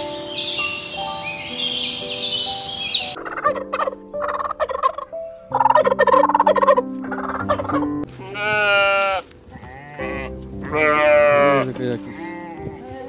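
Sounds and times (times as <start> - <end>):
music with held notes: 0.0 - 13.0
turkey gobbling: 3.0 - 8.1.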